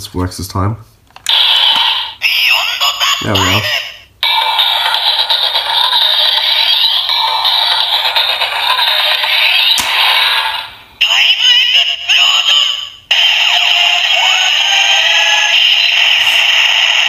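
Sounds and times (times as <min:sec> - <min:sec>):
tinny electronic toy music: 0:01.3 - 0:17.0
synthesized announcer voice: 0:02.2 - 0:04.1.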